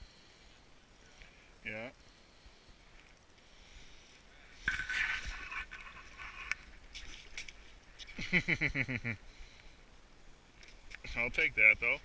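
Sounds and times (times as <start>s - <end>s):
person laughing: 8.2s - 9.2s.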